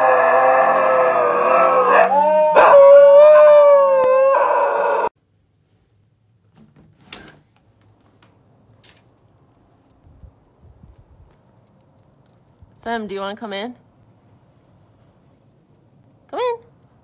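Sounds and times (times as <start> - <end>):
husky howling: 0.0 - 5.2.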